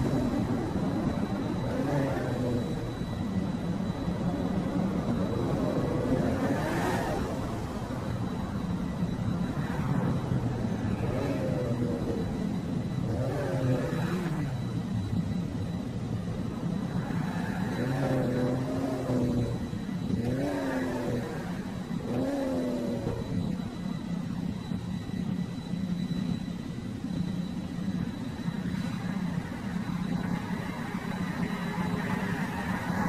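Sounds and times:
car engine running: 0.0s - 25.4s
car engine revving: 1.4s - 3.2s, 9.6s - 14.8s, 17.0s - 23.7s.

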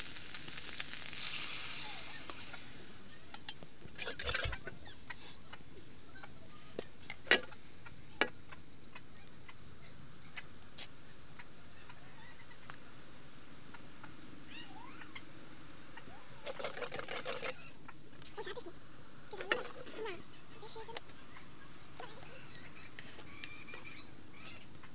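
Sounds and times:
onions sizzling in oil: 0.0s - 5.3s
chickens clucking faintly: 1.5s - 24.9s.

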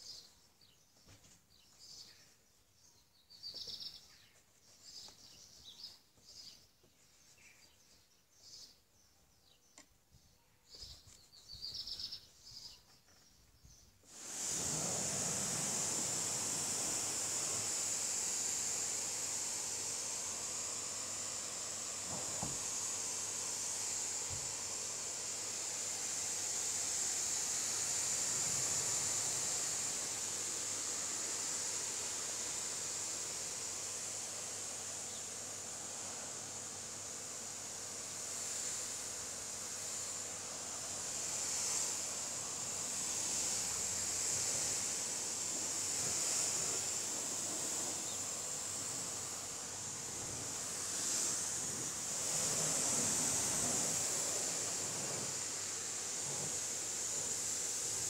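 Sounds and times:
pressure washer water jet hissing: 14.0s - 58.0s.

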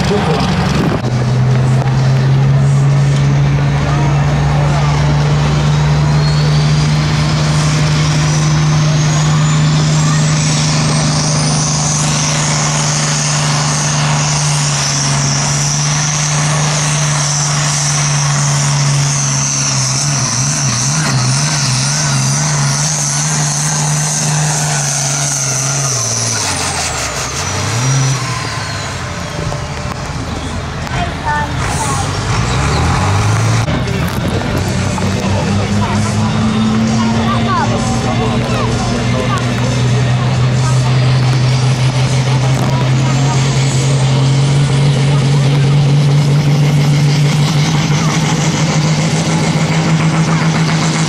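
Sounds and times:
diesel tractor engine under load: 0.0s - 51.0s
high whistle: 6.1s - 6.9s.

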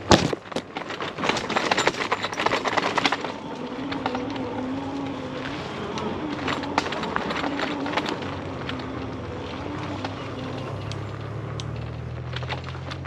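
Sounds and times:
bike clicks and rattles: 0.0s - 13.0s
tyres rumbling on dirt: 0.0s - 13.0s
electric motor whine: 3.2s - 13.0s.

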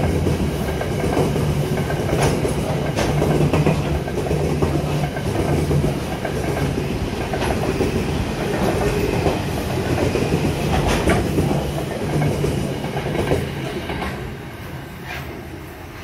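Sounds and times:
wheels clicking over rail joints: 0.0s - 14.3s
freight train rumbling past: 0.0s - 16.0s.

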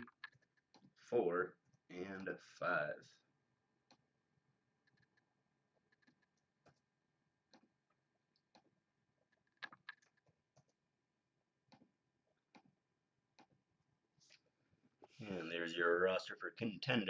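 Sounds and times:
mouse and keyboard clicks: 4.8s - 6.8s, 8.4s - 10.8s.

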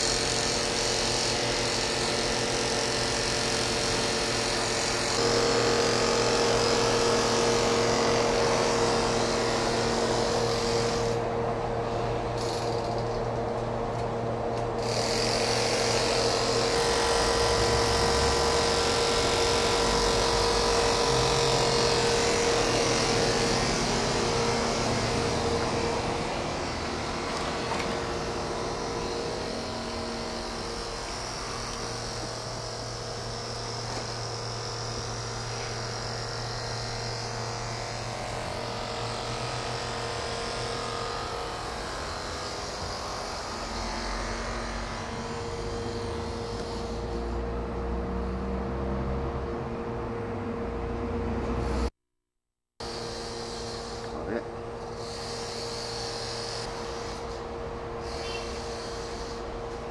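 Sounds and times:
railcar machinery humming: 4.3s - 51.9s.

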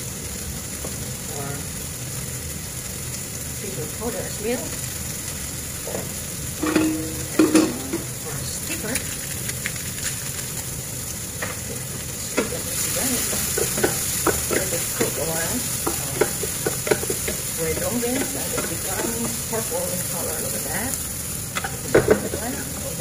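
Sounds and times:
vegetables sizzling in a frying pan: 0.0s - 23.0s
wooden spatula scraping a pan: 11.4s - 20.6s.

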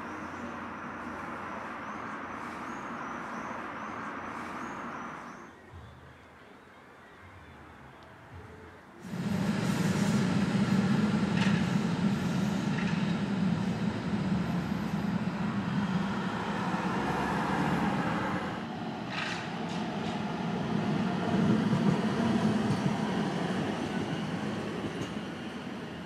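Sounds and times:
tram rumbling past: 9.0s - 26.0s.

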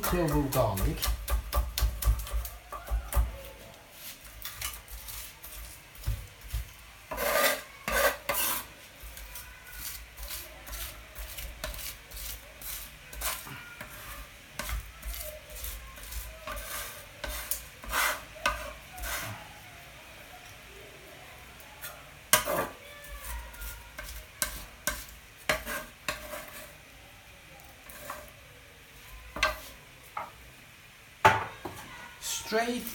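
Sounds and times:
cleaver chopping on wooden board: 0.1s - 2.5s
garlic scraped along board: 7.1s - 8.7s, 9.3s - 19.4s, 24.0s - 26.7s, 27.8s - 28.3s.

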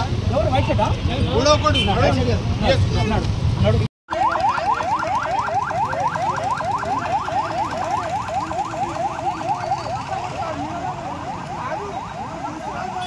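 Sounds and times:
police siren yelp: 4.1s - 13.0s.

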